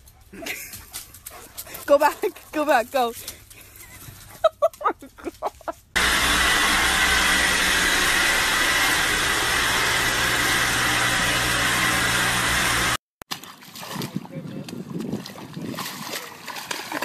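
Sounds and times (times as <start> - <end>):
loud steady machine noise: 6.0 - 13.0.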